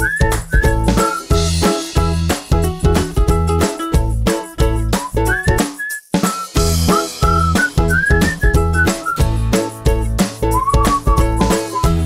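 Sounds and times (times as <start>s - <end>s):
whistled tune: 0.0s - 1.4s, 4.9s - 9.3s, 10.4s - 12.0s
steady beat and bass: 6.4s - 12.0s.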